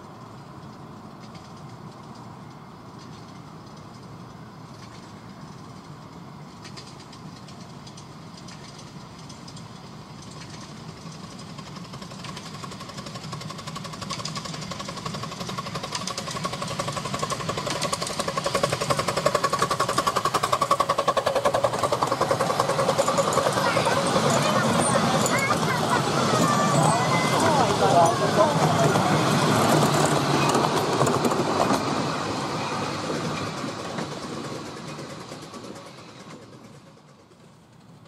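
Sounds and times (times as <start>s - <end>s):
miniature train passing: 0.0s - 38.0s
fast rhythmic wheel clatter: 10.2s - 31.8s.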